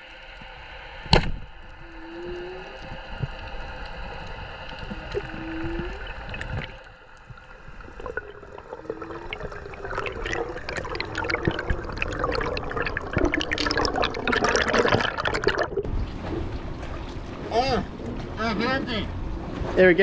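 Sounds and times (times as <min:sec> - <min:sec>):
underwater bubbling and crackling: 0:00.0 - 0:19.6
steady hum: 0:00.0 - 0:20.0.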